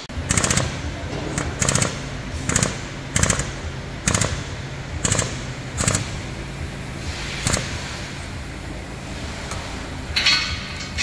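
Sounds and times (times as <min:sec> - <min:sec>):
pneumatic hammer rattling on metal: 0:00.1 - 0:06.2, 0:07.1 - 0:08.1, 0:09.6 - 0:11.0.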